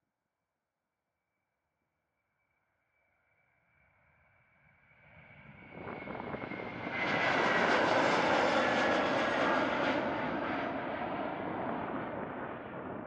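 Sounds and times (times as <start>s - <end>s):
jet engines roaring at takeoff: 5.4s - 13.0s.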